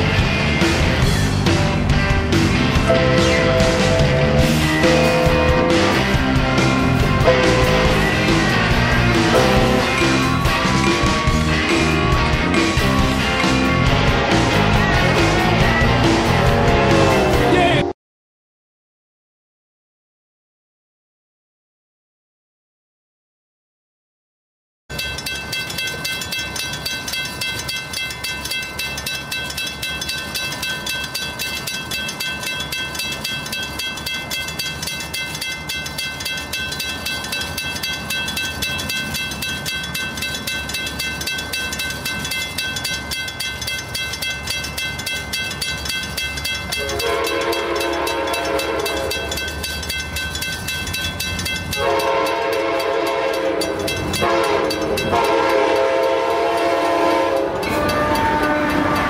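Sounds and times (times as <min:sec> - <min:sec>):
railroad crossing bell ringing: 0:00.0 - 0:17.6, 0:24.9 - 0:59.0
train horn blasts: 0:02.9 - 0:06.2, 0:07.2 - 0:08.5, 0:09.3 - 0:10.2, 0:46.7 - 0:49.4, 0:51.7 - 0:59.0.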